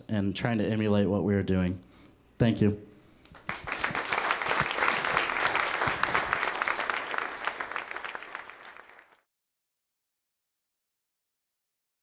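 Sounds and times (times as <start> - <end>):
audience applauding: 3.4 - 9.3.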